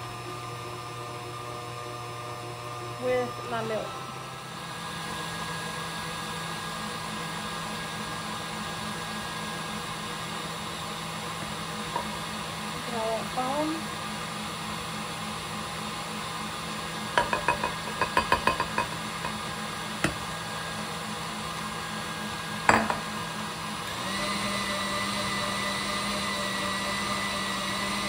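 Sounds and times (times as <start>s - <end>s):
small kitchen appliance motor: 0.0s - 28.0s
knocks against bowl: 17.2s - 19.4s, 22.7s - 23.1s.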